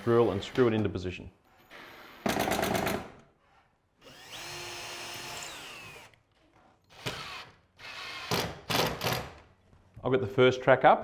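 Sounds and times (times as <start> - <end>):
cordless drill drilling: 4.0 - 6.2, 6.9 - 9.2.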